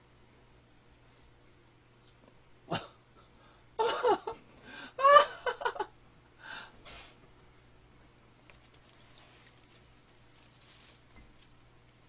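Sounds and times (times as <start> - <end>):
man laughing: 3.8 - 5.9.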